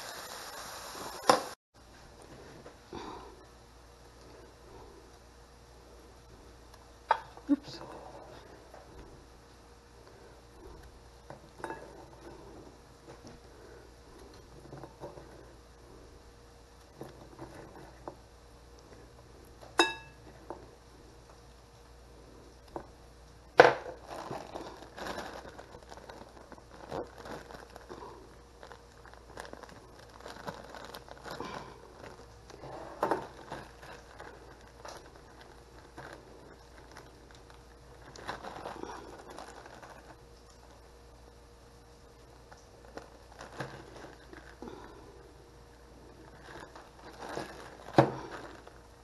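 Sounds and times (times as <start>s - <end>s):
plastic bags crinkling: 23.7s - 40.8s, 42.5s - 45.0s, 46.0s - 49.0s.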